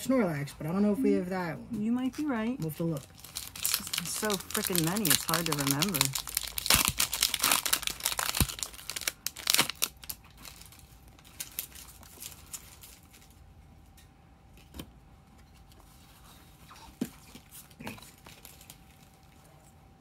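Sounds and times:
foil wrapper crinkling and tearing: 2.2s - 13.4s, 17.4s - 19.4s.

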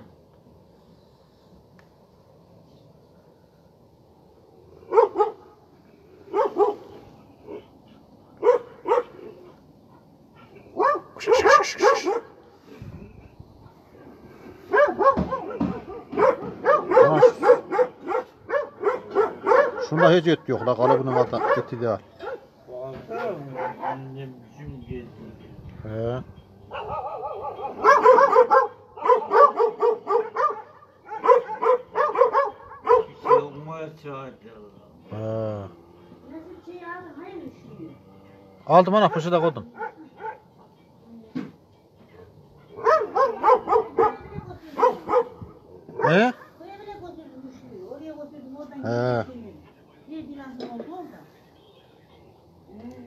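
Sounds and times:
dog barking: 4.9s - 5.5s, 6.3s - 7.6s, 8.4s - 9.3s, 10.6s - 12.4s, 14.7s - 22.5s, 23.1s - 24.2s, 26.7s - 33.6s, 39.0s - 40.6s, 42.7s - 46.6s.

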